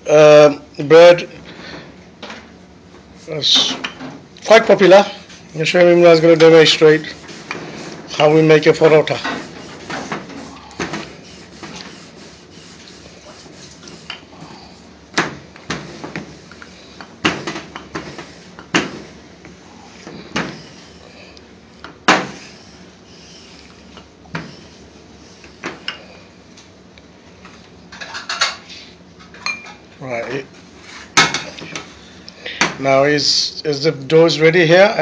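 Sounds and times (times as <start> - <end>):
rolling pin rubbing on dough: 4.9 - 14.8.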